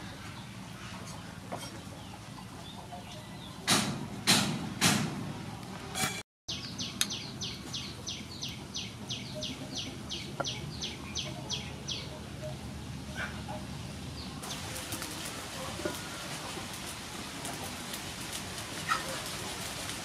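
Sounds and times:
bird chirping: 6.5 - 13.6.

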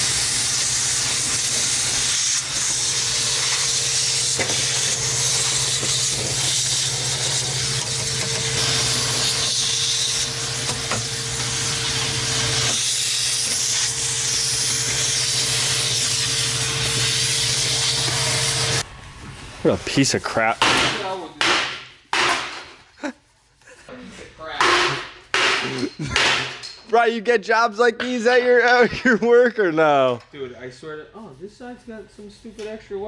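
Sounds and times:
vacuum cleaner running: 0.0 - 20.0.

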